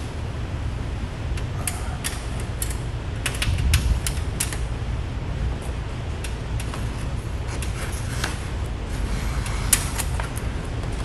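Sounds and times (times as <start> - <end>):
low steady rumble: 0.0 - 11.0
vinyl sheet peeling and crackling: 5.6 - 11.0.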